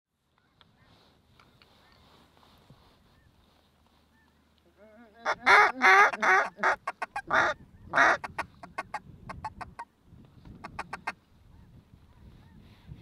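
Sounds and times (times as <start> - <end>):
duck quacking: 5.2 - 9.8.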